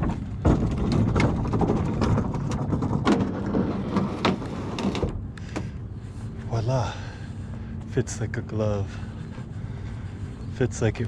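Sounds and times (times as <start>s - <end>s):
plastic hull rumbling: 0.0s - 5.8s.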